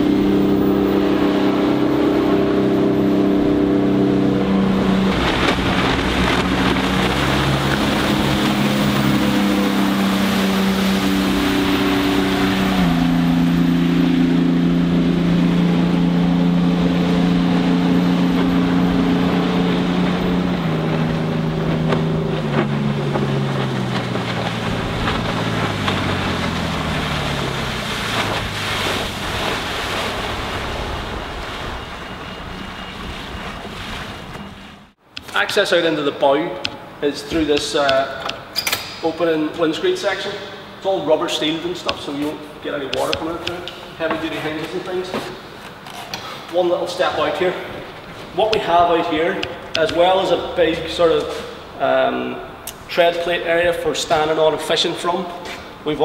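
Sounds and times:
rushing water: 0:00.0 - 0:45.9, 0:46.5 - 0:55.0
boat engine running: 0:00.0 - 0:56.0.

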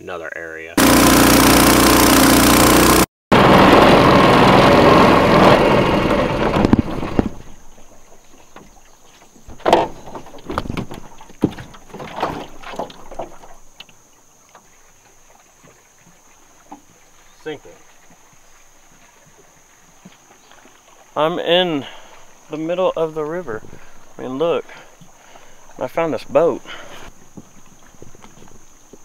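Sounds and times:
water spray hissing: 0:00.8 - 0:03.1
boat motor running hard: 0:00.8 - 0:07.7
knocks and clunks: 0:06.4 - 0:14.7.

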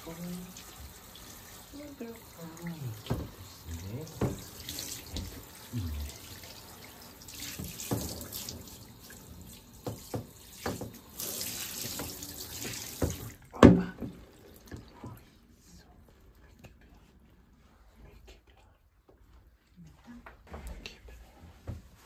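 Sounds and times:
shower water spraying: 0:00.0 - 0:13.4.

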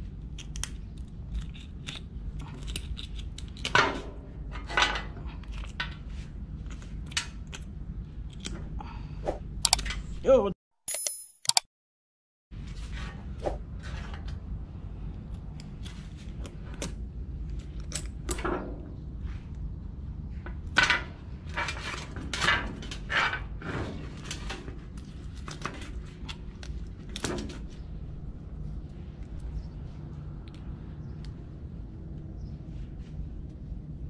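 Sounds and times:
scraping and clicking on shell: 0:00.3 - 0:03.8.

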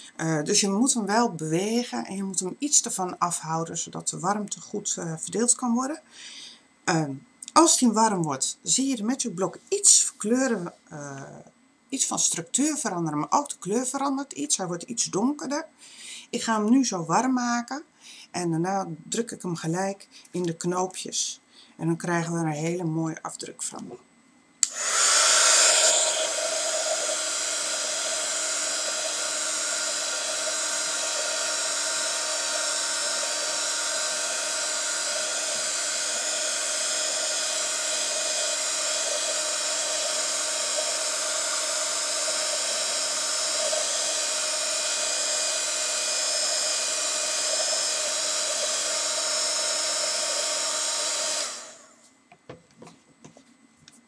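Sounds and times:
faint motor whine: 0:00.0 - 0:54.0
heat tool blowing: 0:24.6 - 0:52.0.

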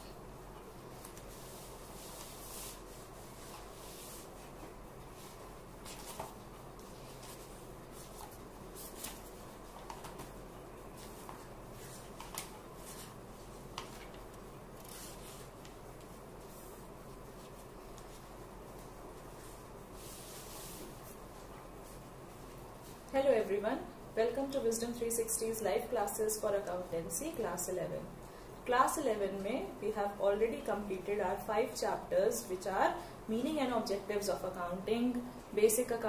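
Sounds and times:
faint steady hum: 0:00.0 - 0:36.0
soft rustles: 0:00.5 - 0:23.2.

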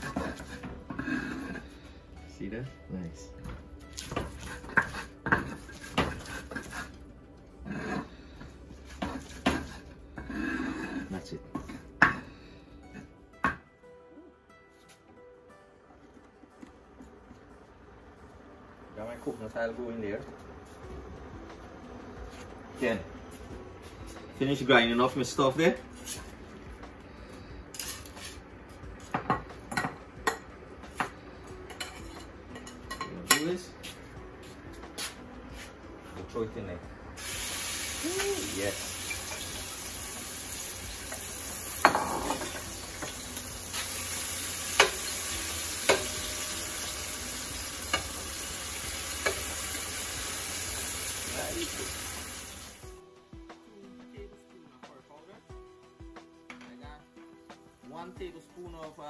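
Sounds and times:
utensils clinking on ceramic bowl: 0:41.8 - 0:43.2.

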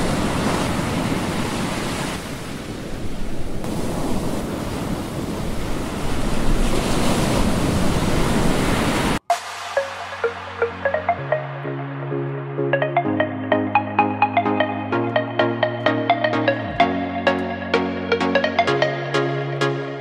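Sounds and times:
surf washing ashore: 0:00.0 - 0:11.4
electronic music: 0:09.2 - 0:20.0.

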